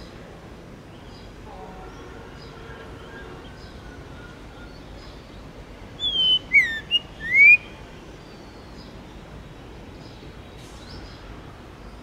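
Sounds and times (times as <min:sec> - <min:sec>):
high bird twitters: 0:06.0 - 0:07.7
bird whistling song: 0:06.0 - 0:07.8
distant bird chirps: 0:06.0 - 0:09.0.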